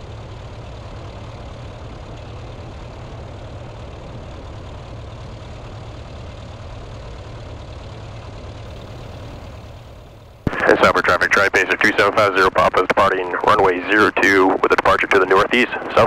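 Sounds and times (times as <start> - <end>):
propeller engine idling: 0.0 - 16.0.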